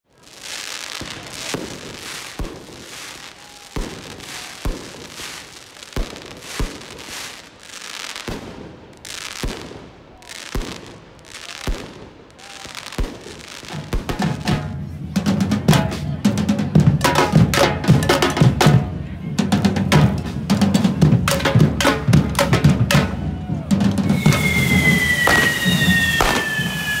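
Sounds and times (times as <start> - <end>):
fireworks hiss: 0.1 - 15.1, 24.0 - 27.0
fireworks bangs: 0.1 - 16.2, 20.0 - 27.0.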